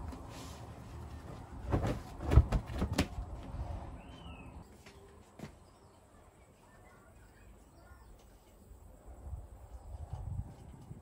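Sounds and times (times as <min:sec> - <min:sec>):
bird chirp: 0:03.9 - 0:08.7.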